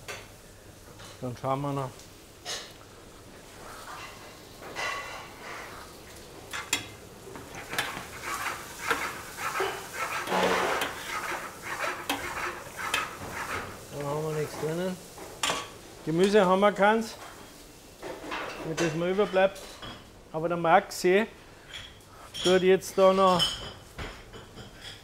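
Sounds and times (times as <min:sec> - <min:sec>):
ladle stirring in a metal pot: 0:07.6 - 0:13.9
man speaking: 0:13.9 - 0:15.0.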